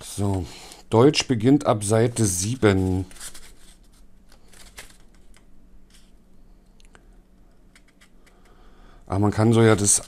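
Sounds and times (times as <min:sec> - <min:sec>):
paper pages flicking and rustling: 0:02.2 - 0:06.1.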